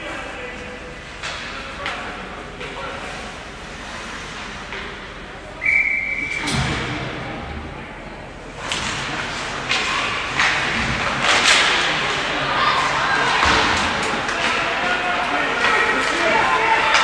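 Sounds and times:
referee whistle blast: 0:05.6 - 0:06.6.

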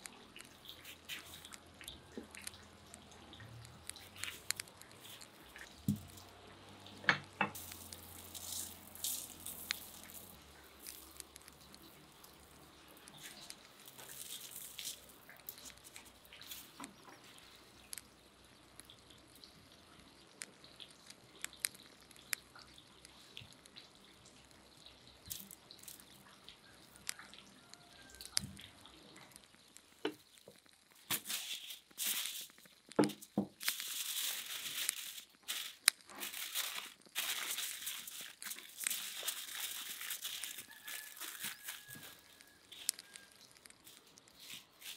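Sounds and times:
aluminium foil crinkling: 0:00.0 - 0:44.9.

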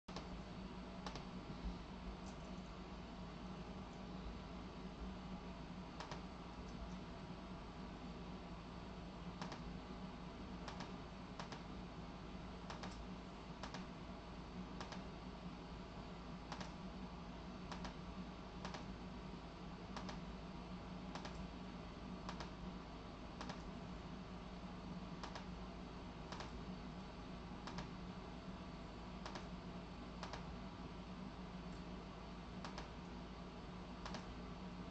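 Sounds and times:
steady low hum: 0:00.1 - 0:34.9
faint sharp clicks: 0:09.4 - 0:09.6, 0:10.7 - 0:11.6, 0:12.7 - 0:13.0, 0:14.8 - 0:15.0, 0:16.5 - 0:16.8, 0:22.3 - 0:22.5, 0:23.4 - 0:23.7, 0:25.2 - 0:25.5, 0:26.3 - 0:26.6, 0:29.2 - 0:29.5, 0:30.2 - 0:30.4, 0:32.6 - 0:32.9, 0:34.0 - 0:34.3.

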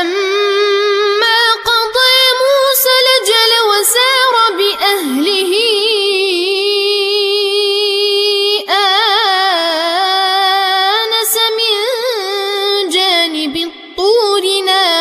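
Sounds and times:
boy chanting recitation: 0:00.0 - 0:15.0.

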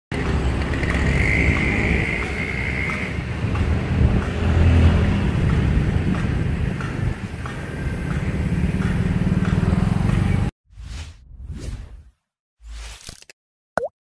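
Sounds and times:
road traffic passing: 0:00.1 - 0:10.5.

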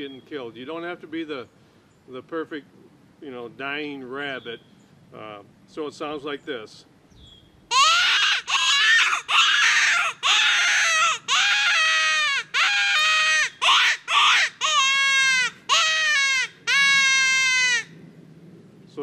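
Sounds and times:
rabbit distress call wailing: 0:07.7 - 0:17.9.

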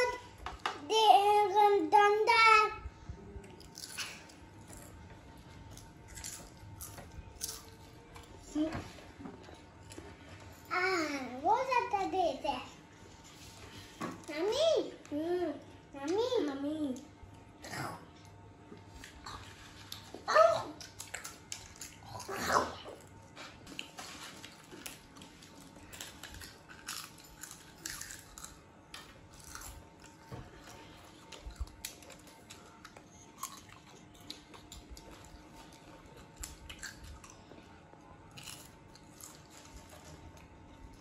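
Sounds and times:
children chewing potato chips: 0:03.3 - 0:08.6, 0:16.9 - 0:41.0.

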